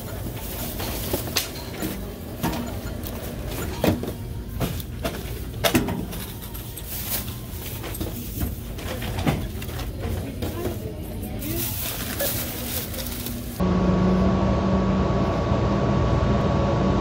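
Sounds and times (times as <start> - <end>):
plastic bags rustling: 0.0 - 13.6.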